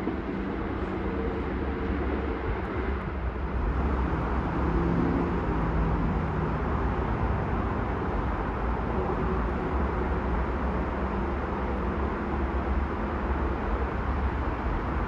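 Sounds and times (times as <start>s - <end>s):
distant train rumbling: 0.0s - 5.9s
road traffic: 0.0s - 15.0s.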